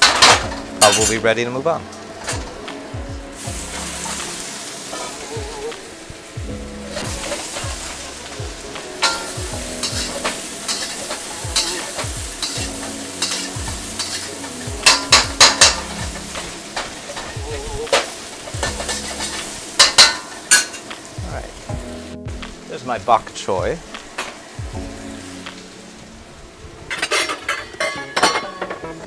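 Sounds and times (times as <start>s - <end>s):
vegetables sizzling in a wok: 0.0s - 29.0s
metal spatula scraping a wok: 9.0s - 20.9s, 26.9s - 28.4s.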